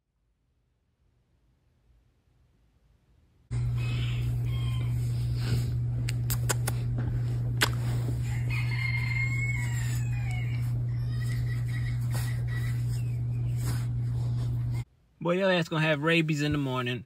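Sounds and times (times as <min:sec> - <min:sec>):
rooster crowing: 0:03.5 - 0:05.6, 0:08.1 - 0:12.3
low hum: 0:03.5 - 0:15.2.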